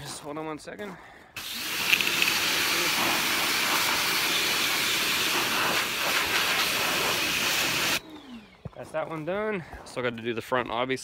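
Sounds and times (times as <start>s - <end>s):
hose water jet spraying: 1.4s - 8.0s.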